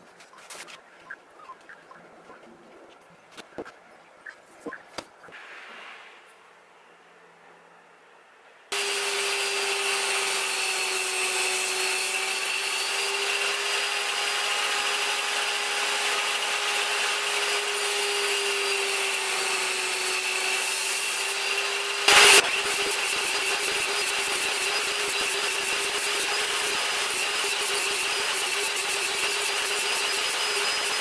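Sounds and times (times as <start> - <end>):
table saw whining: 8.7 - 31.0.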